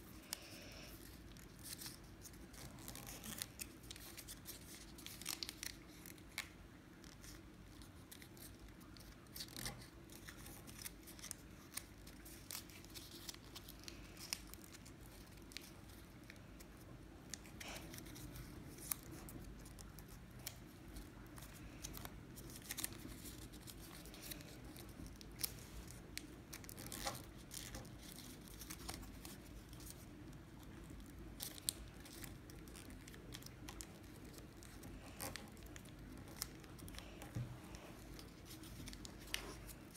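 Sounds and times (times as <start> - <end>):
low steady hum: 0.0 - 39.9
paper crinkling and rustling: 0.0 - 39.9
small paper crackles: 0.0 - 39.9.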